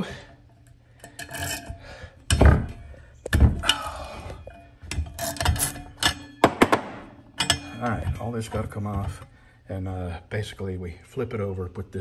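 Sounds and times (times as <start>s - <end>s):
metal tools clanking: 0.0s - 9.2s.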